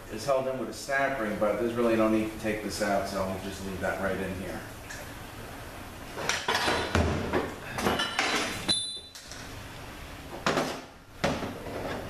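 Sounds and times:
metallic ring: 8.7 - 9.2.

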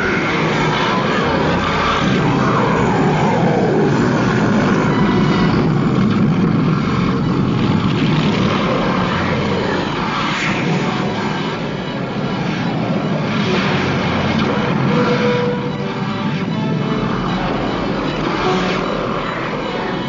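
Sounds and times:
loud rushing drone: 0.0 - 20.0.

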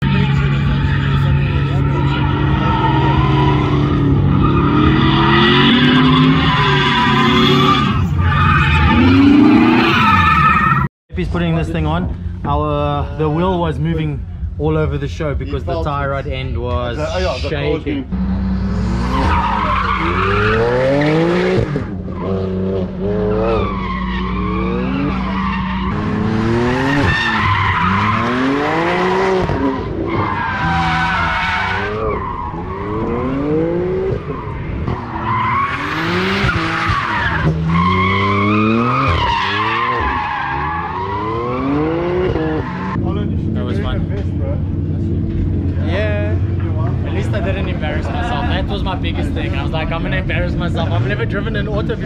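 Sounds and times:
car engine revving hard: 18.1 - 23.6, 24.3 - 43.0
tyres squealing: 19.1 - 21.2.

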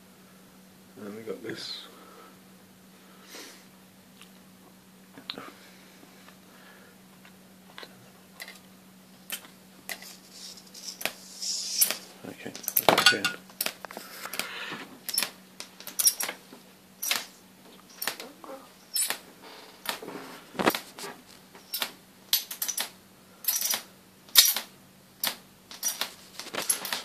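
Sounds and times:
faint steady hum: 0.0 - 27.0
electric arc crackling: 10.2 - 12.8.

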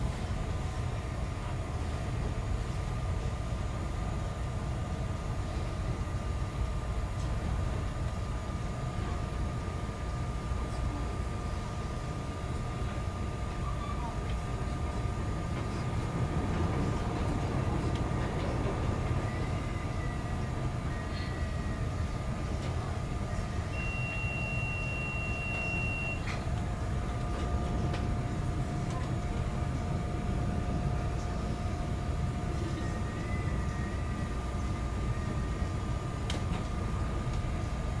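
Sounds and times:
train wheels rumbling: 14.2 - 23.8
faint steady whine: 16.8 - 38.0
train wheels squealing: 19.1 - 22.1, 23.7 - 26.4, 32.6 - 35.7.

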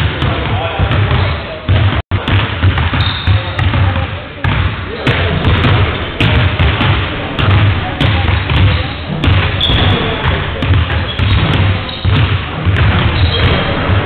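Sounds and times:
basketballs bouncing on wooden floor: 0.0 - 14.0
shoe squeaks: 3.0 - 3.6, 5.0 - 6.3, 8.3 - 12.2, 13.0 - 13.9.

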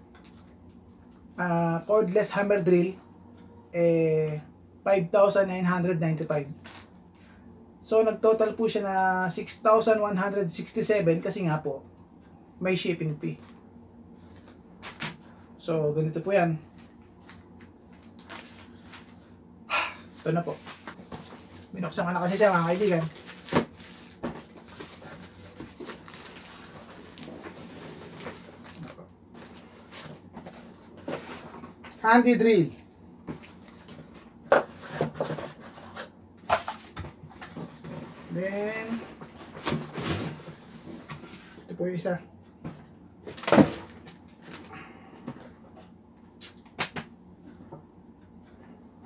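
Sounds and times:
cardboard flaps rustling and scraping: 20.2 - 32.0, 33.3 - 41.6
cardboard boxes knocking and rustling: 38.9 - 41.4, 42.7 - 44.2.

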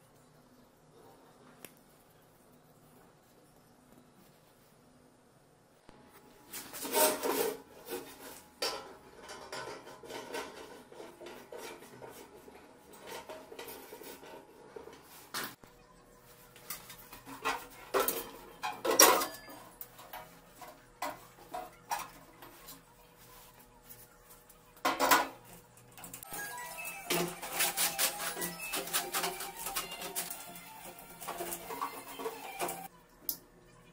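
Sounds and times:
metal scraping: 6.5 - 12.3, 26.2 - 32.9.

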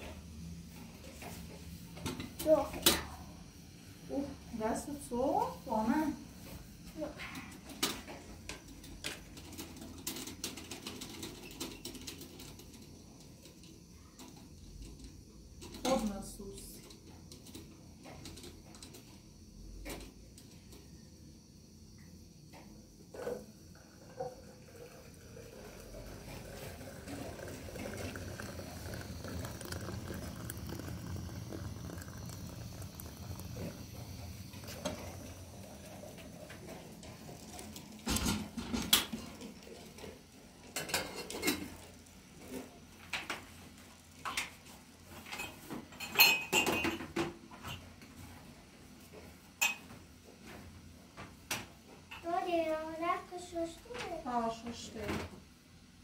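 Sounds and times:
water pouring into teapot: 23.7 - 42.8.

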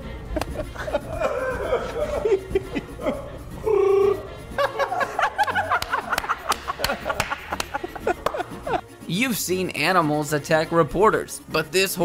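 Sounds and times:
people laughing: 0.0 - 8.9
background music: 0.0 - 12.0.

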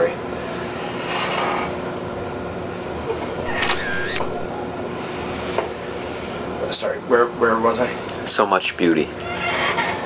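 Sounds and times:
room tone hum: 3.4 - 4.9.

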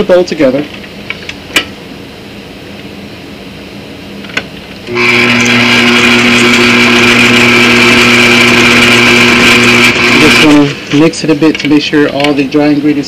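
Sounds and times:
stand mixer motor whining: 4.9 - 11.0.

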